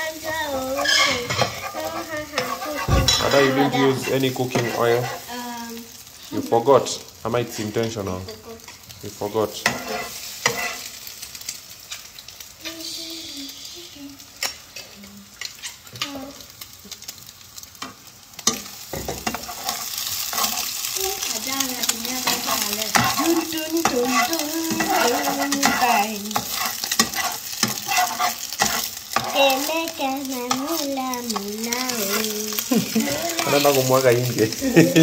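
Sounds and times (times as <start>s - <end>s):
egg sizzling in a pan: 0.0s - 35.0s
metal spatula scraping a pan: 0.2s - 5.4s, 9.5s - 11.2s, 14.4s - 16.2s, 17.8s - 35.0s.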